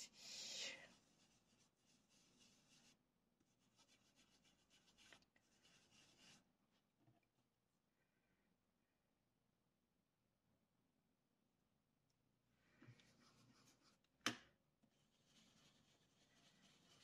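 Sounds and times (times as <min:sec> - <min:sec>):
brush rubbing on card: 0:00.2 - 0:06.5, 0:13.0 - 0:14.0, 0:14.9 - 0:17.0.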